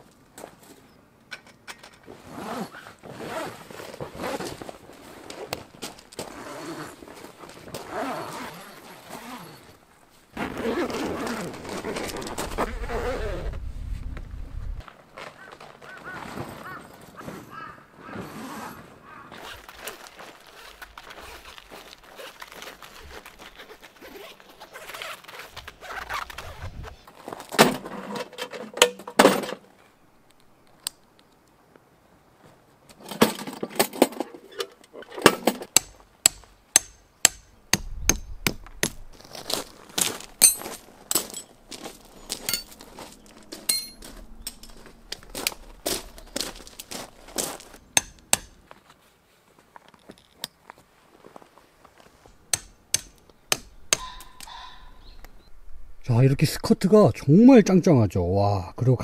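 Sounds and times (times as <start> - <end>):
tent fabric rustling: 2.1 - 28.1, 39.2 - 47.9
tent pegs being hammered: 35.2 - 39.0, 47.9 - 48.7, 52.4 - 54.6.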